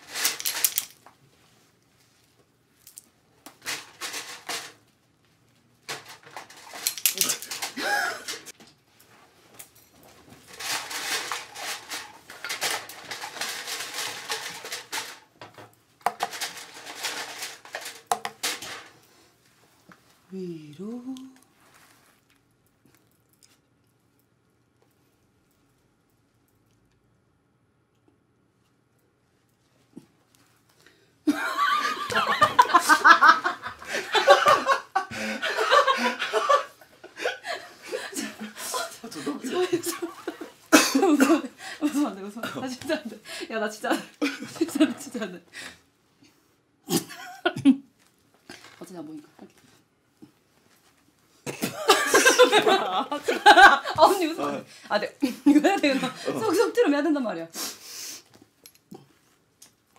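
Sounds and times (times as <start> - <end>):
makeup brushes and bottles clattering: 0.0 - 1.0, 2.9 - 4.8, 5.9 - 8.5, 10.3 - 19.0, 38.1 - 43.1
people laughing hard: 31.3 - 41.4, 51.5 - 54.3.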